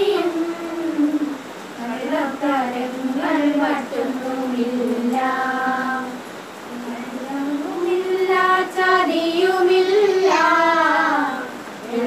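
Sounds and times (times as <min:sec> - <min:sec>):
women singing together: 0:00.0 - 0:12.0.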